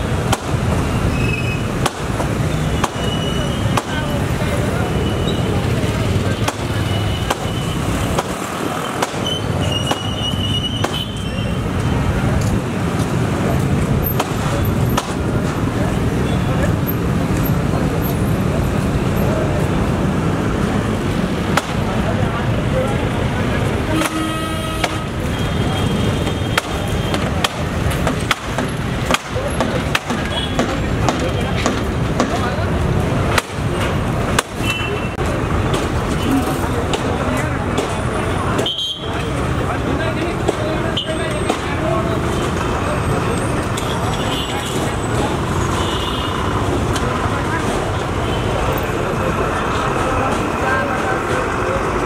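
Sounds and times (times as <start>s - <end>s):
street din: 0.0s - 52.0s
vehicle engines rumbling: 0.0s - 52.0s
sharp clicks and knocks: 26.2s - 32.6s.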